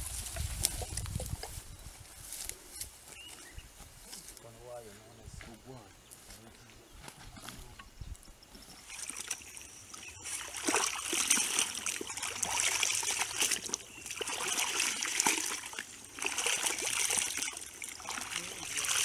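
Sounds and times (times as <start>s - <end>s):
muddy water splashing and sloshing: 8.5s - 19.0s.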